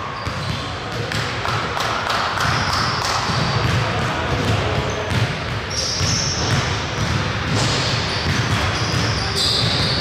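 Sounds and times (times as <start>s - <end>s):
sneakers squeaking on floor: 0.0s - 1.3s, 2.4s - 10.0s
basketball bouncing on court: 0.0s - 10.0s.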